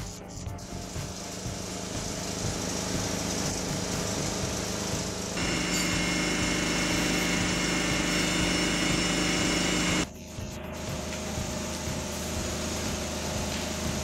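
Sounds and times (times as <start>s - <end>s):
steady machine noise: 0.6s - 10.1s
core drill boring into concrete: 5.2s - 10.1s.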